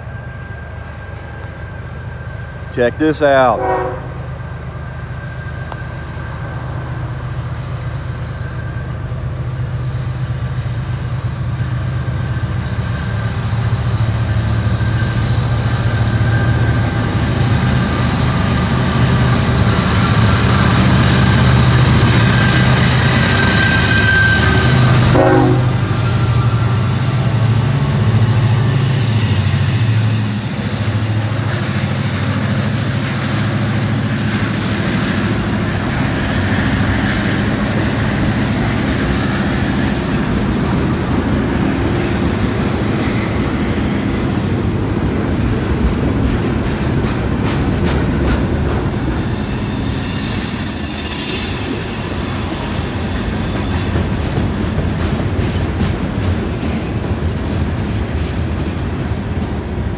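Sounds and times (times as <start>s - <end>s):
diesel locomotive engines droning: 0.0s - 59.9s
train wheels rumbling on rail: 0.0s - 59.9s
high-pitched wheel squeal: 21.8s - 27.0s, 47.2s - 54.0s
wheels clicking over rail joints: 45.7s - 49.2s, 53.4s - 59.9s.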